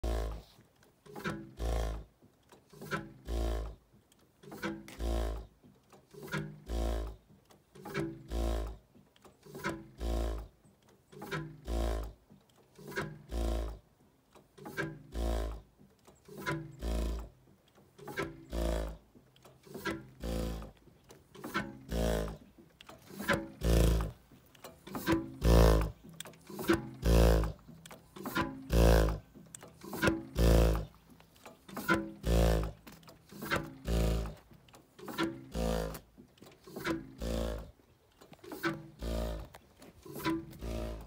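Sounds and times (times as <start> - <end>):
engine firing with deep thumps: 14.6 - 37.8.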